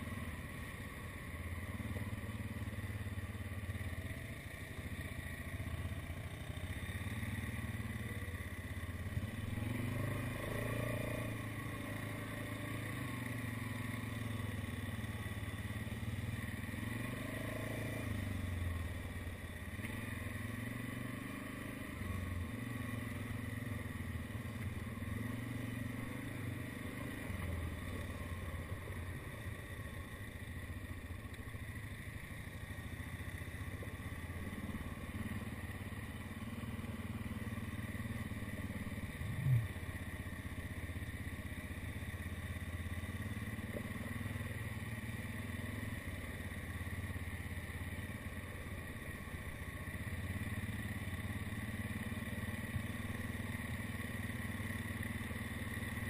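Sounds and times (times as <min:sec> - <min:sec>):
atv engine running: 0:00.0 - 0:56.0.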